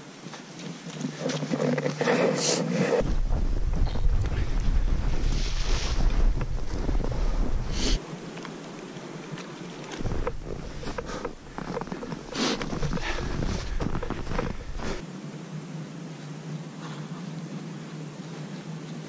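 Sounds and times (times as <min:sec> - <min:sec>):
footsteps crunching in snow: 0:00.3 - 0:15.0
wind buffeting microphone: 0:03.0 - 0:08.0, 0:10.0 - 0:15.0
man breathing: 0:07.1 - 0:08.0, 0:10.6 - 0:15.0.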